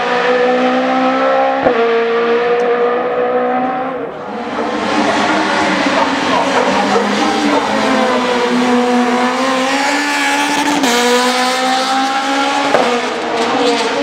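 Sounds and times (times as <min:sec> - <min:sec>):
rally car engine revving hard: 0:00.0 - 0:14.0.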